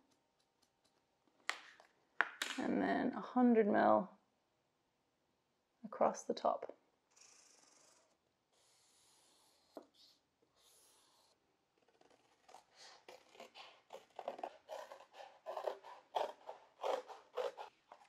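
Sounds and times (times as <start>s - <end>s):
marker drawing on cardboard: 8.5s - 11.4s
scissors cutting cardboard: 11.8s - 18.0s.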